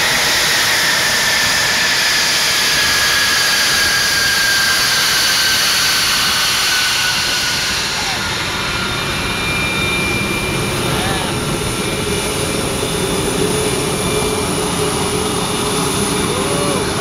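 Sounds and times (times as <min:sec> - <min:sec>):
jet engine rush with whistle: 0:00.0 - 0:17.0.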